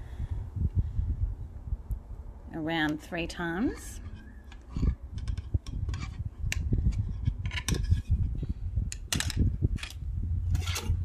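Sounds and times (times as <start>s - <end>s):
wire clicking and scraping: 3.6s - 11.0s.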